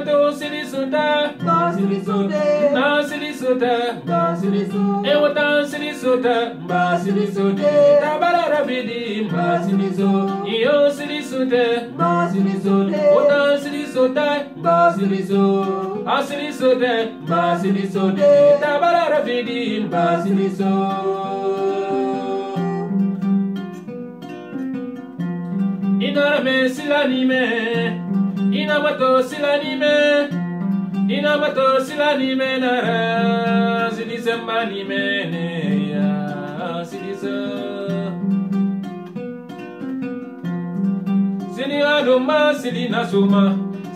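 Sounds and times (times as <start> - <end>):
people singing: 0.0 - 23.0
kora plucked figure: 12.0 - 13.9.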